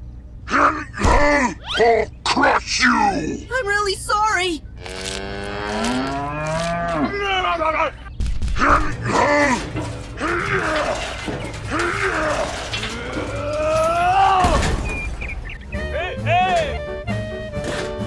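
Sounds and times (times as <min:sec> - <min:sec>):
cow mooing: 0:04.8 - 0:07.8.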